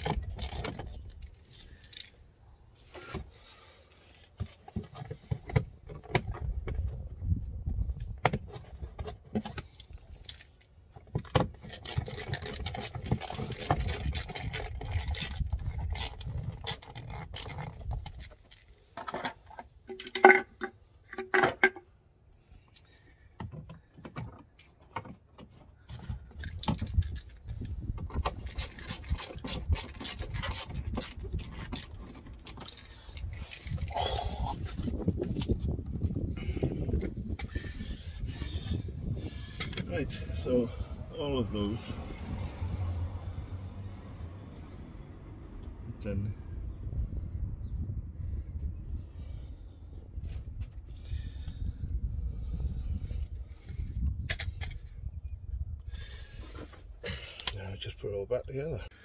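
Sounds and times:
tools scraping: 11.2s - 21.8s, 28.2s - 35.6s
microphone handling rumble: 33.3s - 41.1s.

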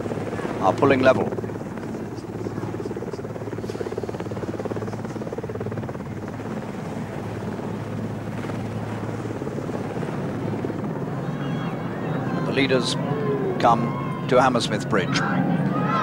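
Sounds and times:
helicopter rotor chop: 0.0s - 16.0s.

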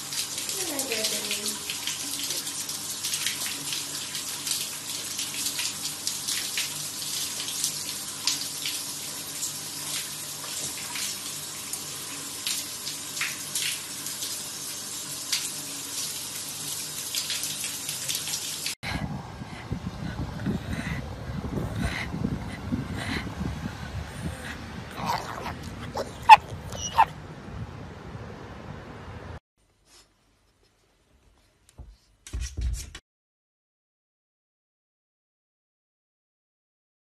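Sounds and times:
running water splashing: 0.0s - 18.8s, 23.8s - 27.1s.

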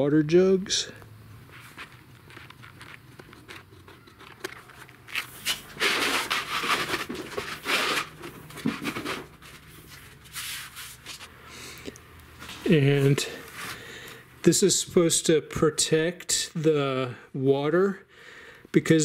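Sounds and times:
vinyl sheet rustling and crinkling: 1.4s - 11.3s.

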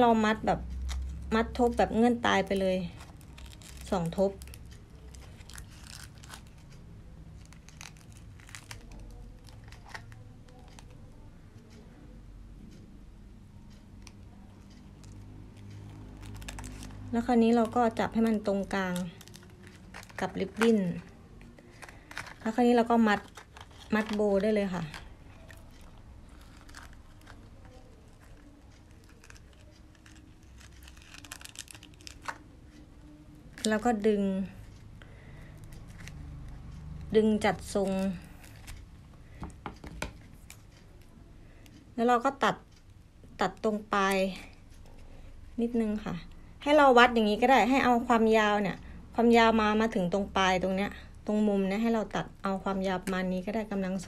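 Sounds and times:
paper rustling and crinkling: 23.1s - 32.4s.

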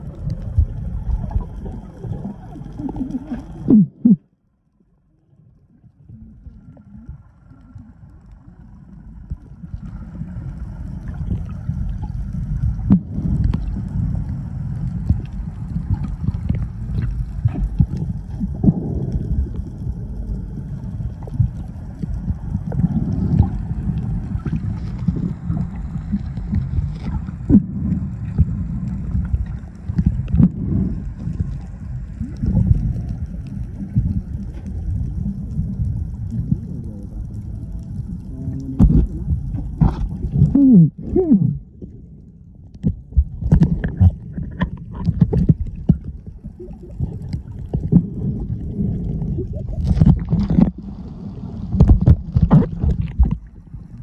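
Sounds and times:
low underwater rumble: 0.0s - 54.0s
underwater clicks and knocks: 11.0s - 13.8s, 15.0s - 20.3s, 37.8s - 42.0s, 42.6s - 50.9s, 51.6s - 54.0s.

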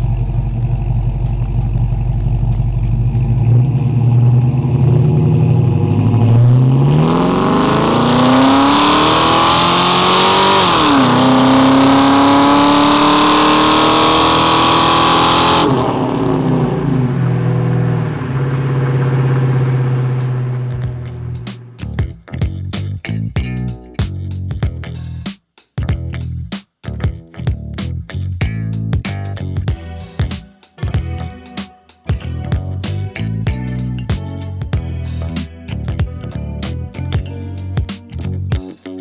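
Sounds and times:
car engine accelerating: 0.0s - 22.1s.

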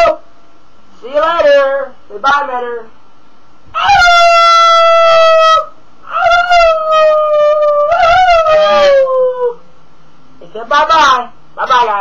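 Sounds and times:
dog howling: 3.8s - 9.6s
person howling: 3.8s - 9.6s.

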